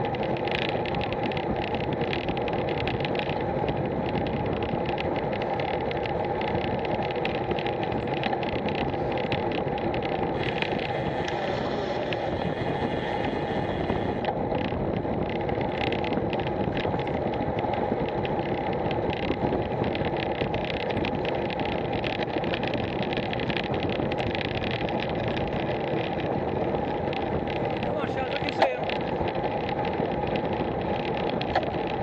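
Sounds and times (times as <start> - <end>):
bike tyres on tarmac: 0.0 - 32.0
small ticks and rattles: 0.0 - 32.0
wind noise on microphone: 0.0 - 32.0.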